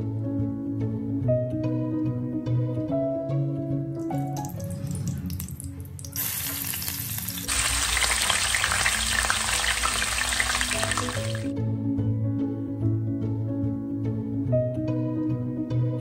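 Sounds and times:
oil and meat sizzling: 4.4s - 11.5s.

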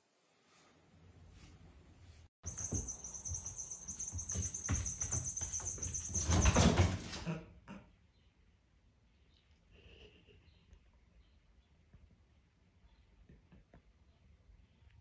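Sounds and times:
toy ball rattling on wooden floor: 2.5s - 6.8s
cat paws knocking: 2.5s - 6.9s.

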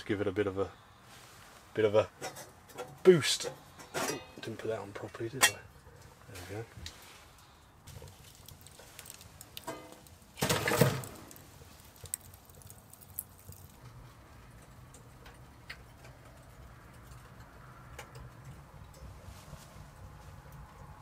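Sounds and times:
fire crackling and ticking: 6.8s - 19.2s
log clattering in firebox: 7.9s - 17.0s.

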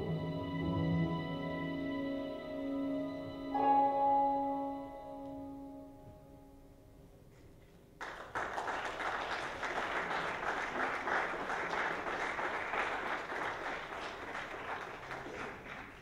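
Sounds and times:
audience applauding: 8.0s - 16.0s.

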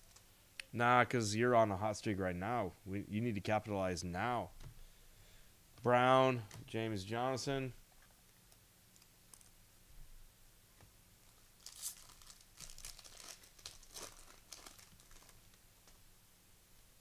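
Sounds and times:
card pack wrapper crinkling: 11.3s - 16.0s.

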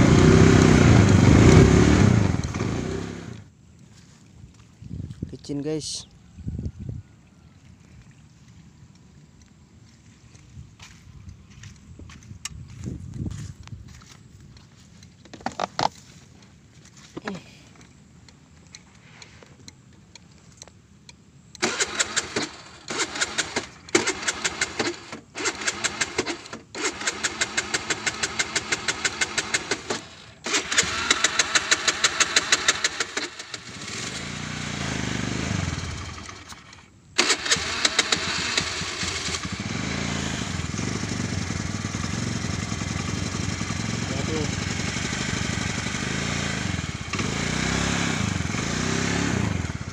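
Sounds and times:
motorcycle engine running: 0.0s - 3.5s, 22.9s - 49.9s
motorcycle starter cranking: 21.6s - 49.9s.

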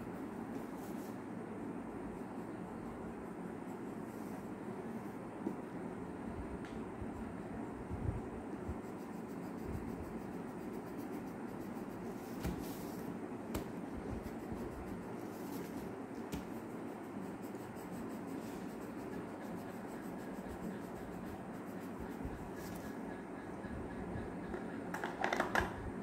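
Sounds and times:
low background hum: 0.0s - 26.0s
pencil scratching on paper: 8.5s - 23.5s.

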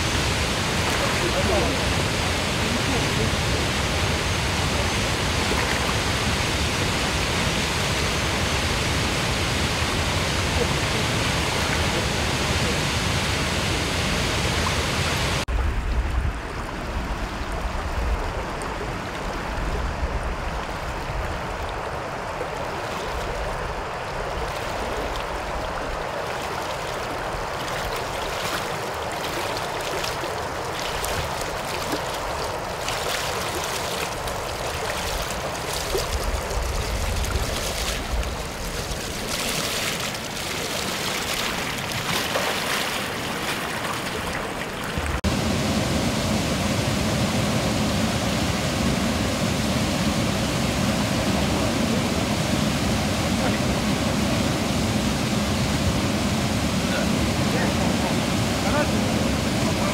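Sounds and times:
shallow river flowing: 0.0s - 59.9s
waterfall and rapids roaring: 0.0s - 59.9s
splashing of wading in boots: 26.3s - 45.2s.

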